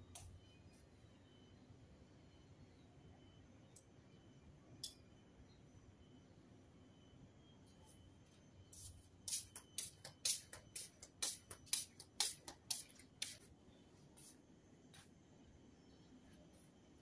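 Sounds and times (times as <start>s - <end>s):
slippers slapping on tiled floor: 9.4s - 13.4s.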